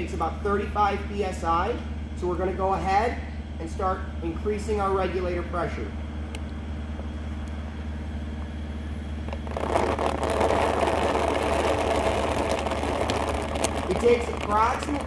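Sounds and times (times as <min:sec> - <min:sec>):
air compressor humming: 0:00.0 - 0:15.0.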